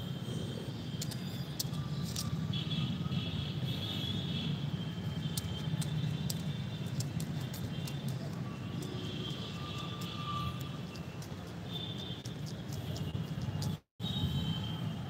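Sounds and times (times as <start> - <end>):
small sharp clicks: 5.2 - 8.9.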